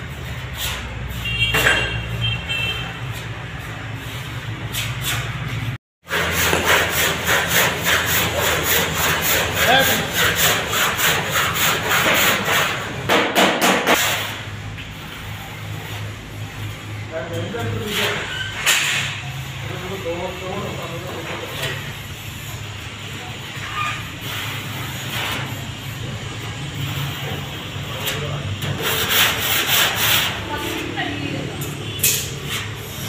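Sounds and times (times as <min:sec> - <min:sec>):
sandpaper scraping strokes: 0:00.0 - 0:01.2, 0:03.0 - 0:13.0, 0:23.6 - 0:26.0, 0:28.7 - 0:31.0.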